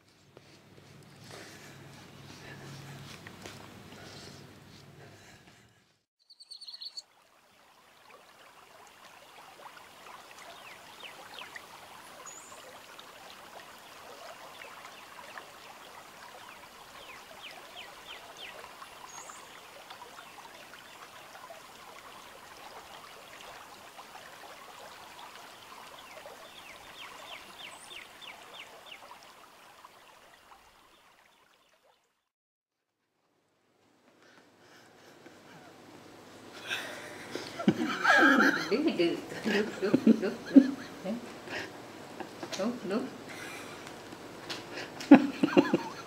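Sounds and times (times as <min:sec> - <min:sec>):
trickling water rush: 0:00.0 - 0:05.6, 0:06.5 - 0:32.3, 0:33.9 - 0:46.0
high bird chirps: 0:06.2 - 0:07.0.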